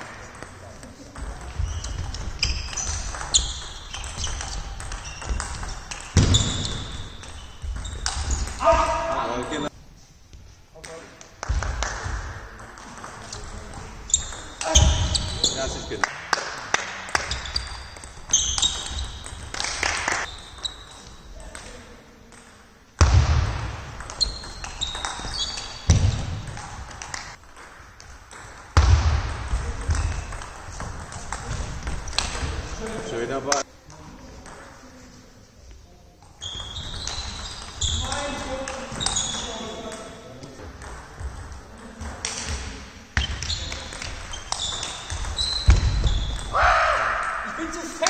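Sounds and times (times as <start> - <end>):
shoe squeaks on floor: 1.5 - 8.9, 14.1 - 15.9, 17.2 - 21.3, 24.1 - 26.4, 36.3 - 40.1, 43.2 - 46.5.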